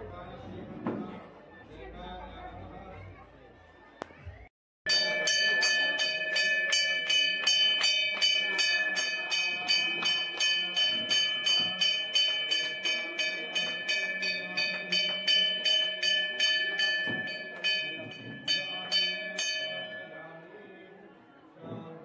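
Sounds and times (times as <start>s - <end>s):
bell rung steadily: 4.9s - 20.7s.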